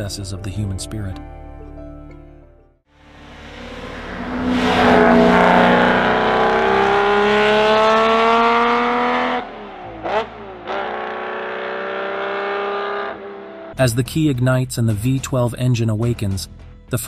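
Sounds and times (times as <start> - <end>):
car engine accelerating and revving: 3.0 - 13.8.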